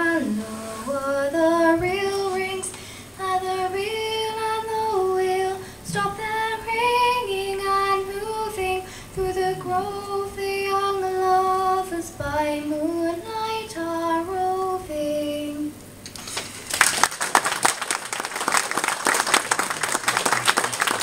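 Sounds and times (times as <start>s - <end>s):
audience applause: 16.4s - 21.0s.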